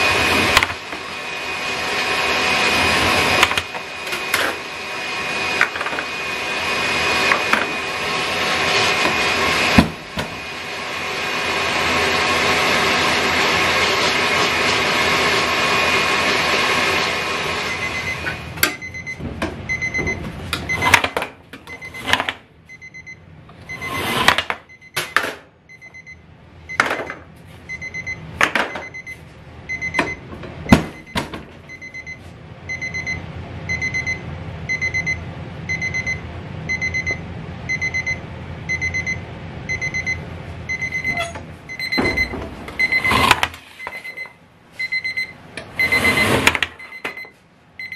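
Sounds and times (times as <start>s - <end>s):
baking timer beeping: 17.6s - 47.9s.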